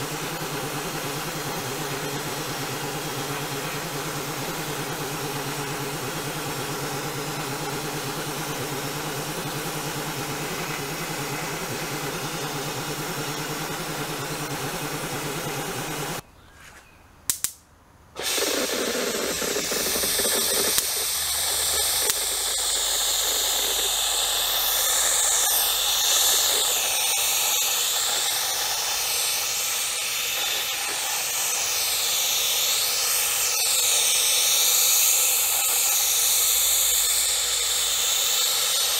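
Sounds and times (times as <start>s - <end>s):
motor running: 0.0s - 16.2s, 18.2s - 38.9s
paint spray hissing: 0.0s - 16.2s, 18.2s - 38.9s.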